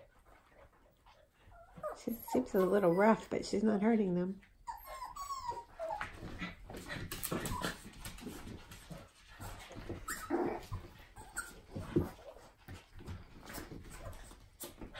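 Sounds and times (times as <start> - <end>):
puppies whimpering: 1.4 - 3.3, 4.6 - 6.6, 9.9 - 11.9
paws on floor: 4.3 - 14.9
dogs scuffling in play: 5.5 - 14.9.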